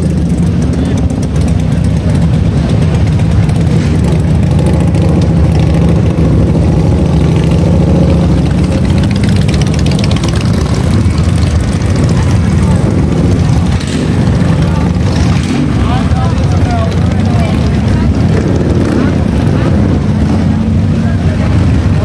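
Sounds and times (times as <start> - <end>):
motorcycle engine idling: 0.0 - 22.0.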